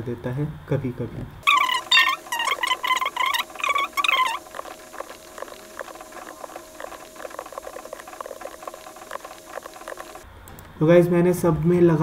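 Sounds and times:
squeaky sped-up voice chirping: 0:01.4 - 0:08.5.

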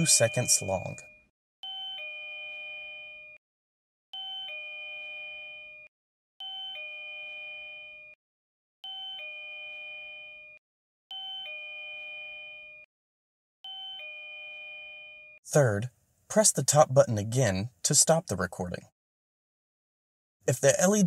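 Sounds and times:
doorbell ding-dong chime: 0:04.2 - 0:08.2, 0:08.9 - 0:12.9.

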